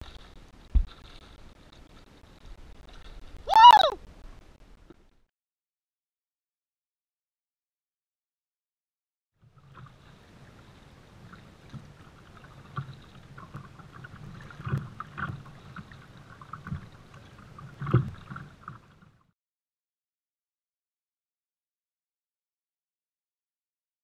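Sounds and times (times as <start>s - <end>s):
water sloshing against hull: 0.0s - 3.4s, 9.4s - 19.3s.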